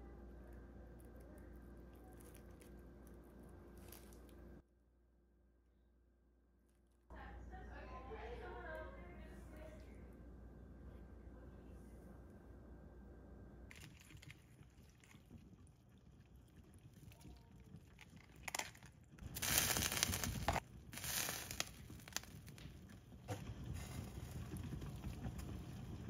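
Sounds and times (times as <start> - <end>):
soup simmering in a pot: 19.2 - 26.0.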